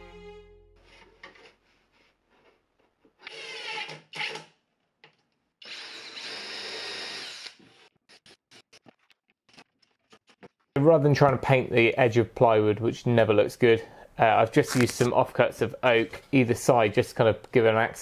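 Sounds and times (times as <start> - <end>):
cordless drill driving screws: 3.2 - 4.5, 5.6 - 7.8.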